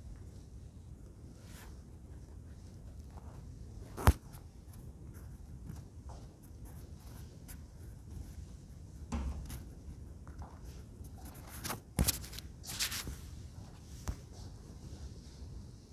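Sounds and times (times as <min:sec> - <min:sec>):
light knocks: 0:09.1 - 0:09.8.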